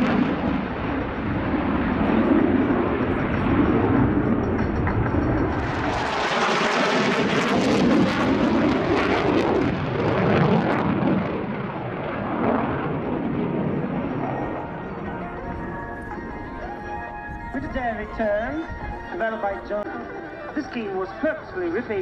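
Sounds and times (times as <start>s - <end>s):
jet engine roar with crackle: 0.0s - 16.3s.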